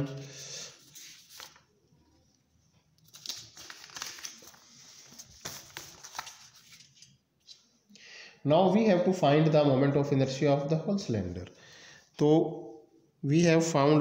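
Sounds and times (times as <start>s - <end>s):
paper rustling and crinkling: 0.8s - 2.3s, 3.0s - 7.6s.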